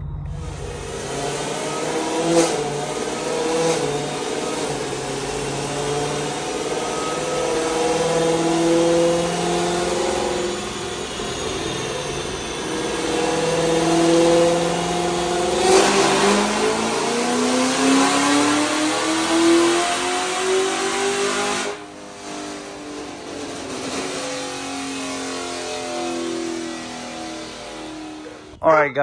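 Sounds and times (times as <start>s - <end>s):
car engine revving on dyno: 0.0s - 28.6s.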